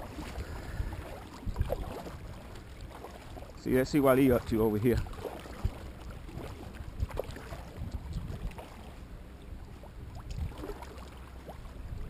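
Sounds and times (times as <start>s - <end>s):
water splashing off paddle: 0.0s - 9.0s
low steady rumble: 0.0s - 12.0s.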